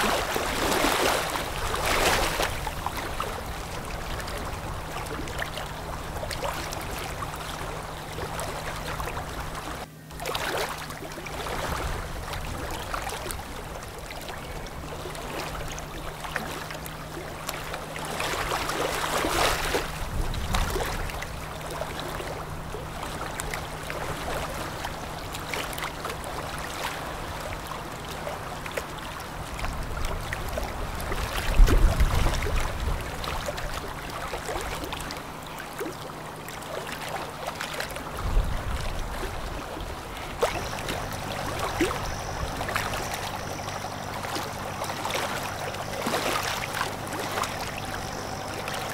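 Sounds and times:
boat engine hum: 0.0 - 48.9
rushing water from bow wave: 0.0 - 48.9
low rumble: 38.2 - 48.9.

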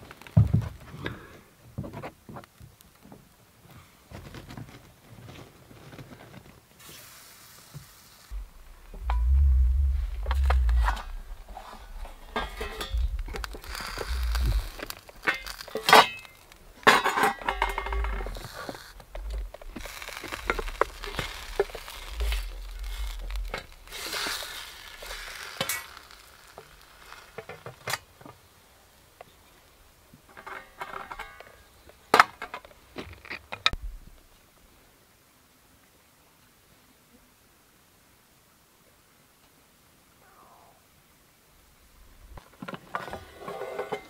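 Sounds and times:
sizzling in pan: 6.8 - 9.4, 10.2 - 28.1.

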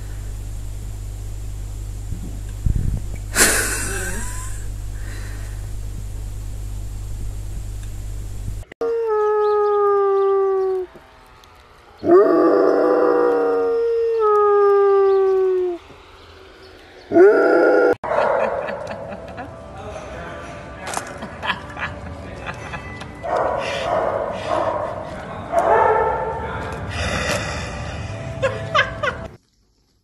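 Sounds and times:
low hum: 0.0 - 20.8
dog howling: 8.8 - 11.0, 12.0 - 15.9, 17.1 - 18.0.

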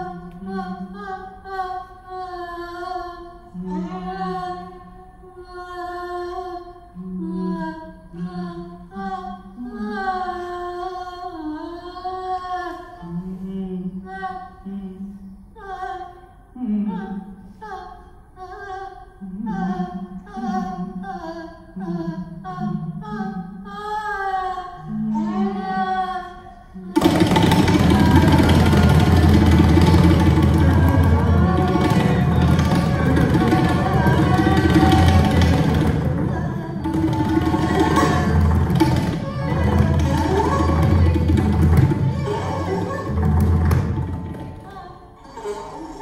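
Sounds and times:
person singing slow gliding melody: 5.4 - 26.9.

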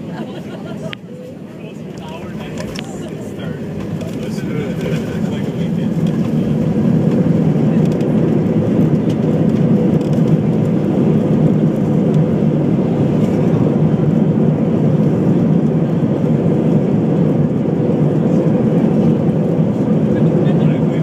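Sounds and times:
airliner engines roaring in cabin: 0.0 - 21.0.

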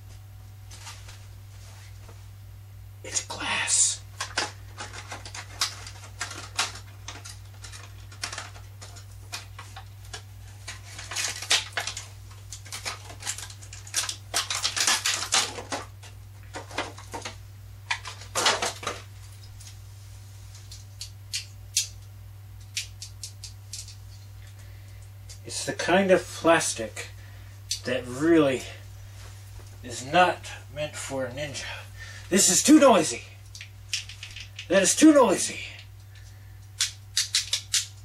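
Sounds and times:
low electrical hum: 0.0 - 38.0
plastic packaging clicks and rustles: 4.2 - 19.8.

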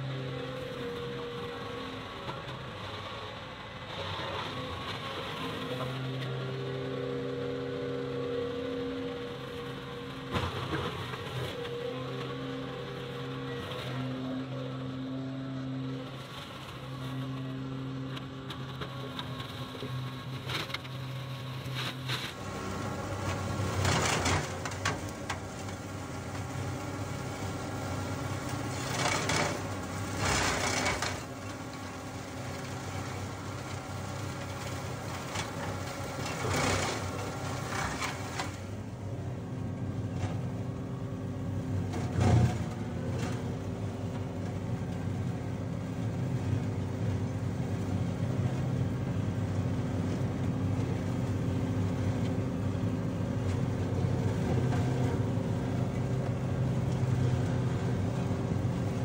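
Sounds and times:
diesel tractor running: 0.0 - 59.0
flail mower chopping brush: 20.4 - 38.7.

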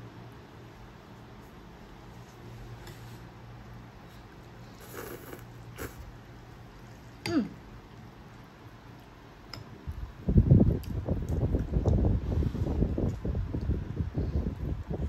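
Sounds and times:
low steady hum: 0.0 - 15.0
wind buffeting microphone: 9.9 - 15.0.

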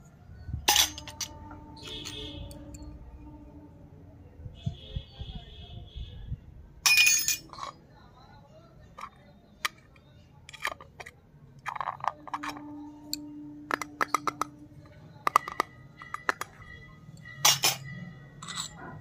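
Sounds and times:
metal container clicks: 9.0 - 18.8.

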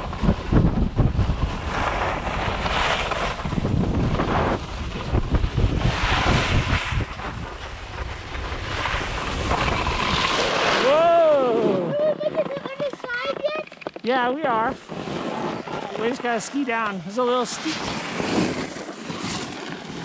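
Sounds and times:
wind buffeting microphone: 0.0 - 13.6
skis hissing on snow: 1.5 - 11.0, 14.5 - 19.8.

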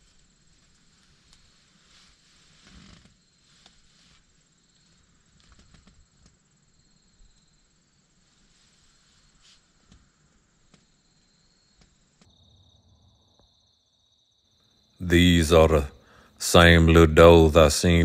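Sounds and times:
soft clicks and rustles: 0.0 - 6.4, 8.3 - 11.0.

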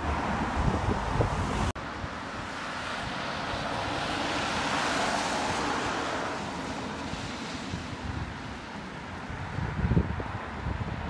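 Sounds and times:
road traffic passing: 0.0 - 11.0
wind on microphone: 0.0 - 11.0.

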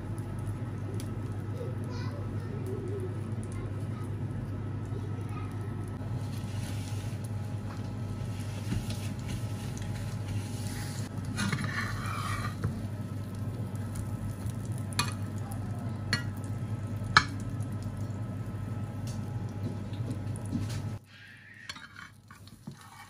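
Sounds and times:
food sizzling in a pan: 10.4 - 18.7, 20.9 - 23.0.

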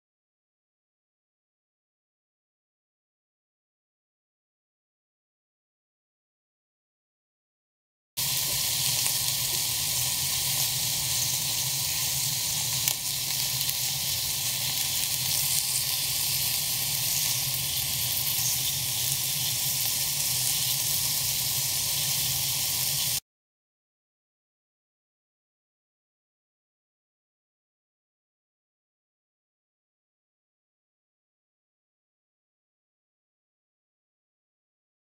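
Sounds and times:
meat sizzling in oil: 8.2 - 23.2.

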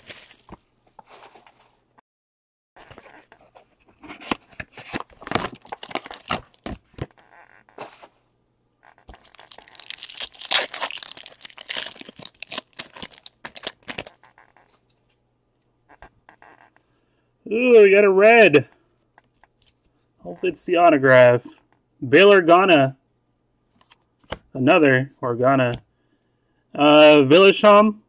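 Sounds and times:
foil wrapper tearing and crinkling: 0.0 - 0.6, 4.8 - 6.8, 9.1 - 14.3.

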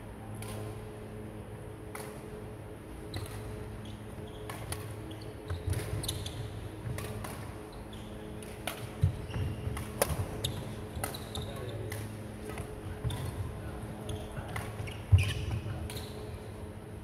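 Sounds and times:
steady low hum: 0.0 - 17.0
racket hitting shuttlecock: 6.8 - 7.5, 8.4 - 11.3
shoes squeaking on wooden floor: 14.8 - 15.4.

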